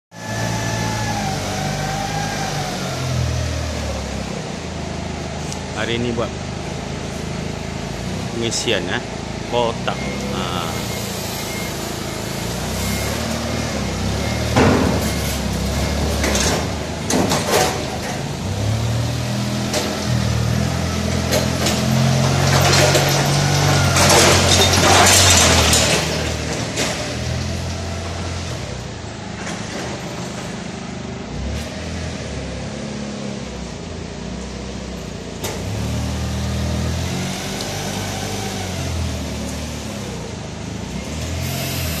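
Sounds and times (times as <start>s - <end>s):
forklift engine running: 0.2s - 42.0s
sharp knocks and clanks: 14.4s - 18.3s.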